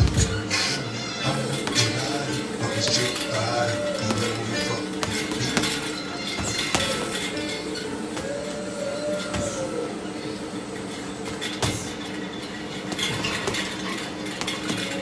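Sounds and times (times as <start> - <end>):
gloves punching a bag: 0.0 - 0.4.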